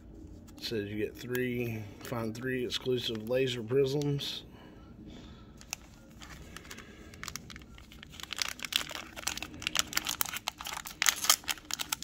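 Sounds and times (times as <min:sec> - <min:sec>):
plastic wrapper crinkling: 0:05.6 - 0:12.0.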